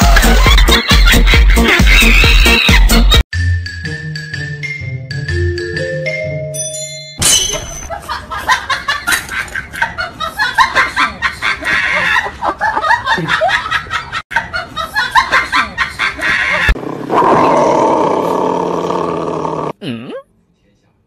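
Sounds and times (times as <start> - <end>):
person laughing: 10.1 - 13.8.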